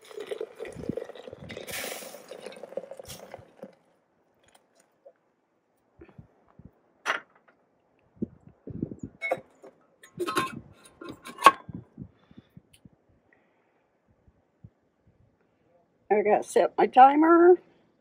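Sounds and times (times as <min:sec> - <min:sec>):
water pouring from a kettle: 0:00.0 - 0:03.8
kettle clanking on stove: 0:09.2 - 0:11.6.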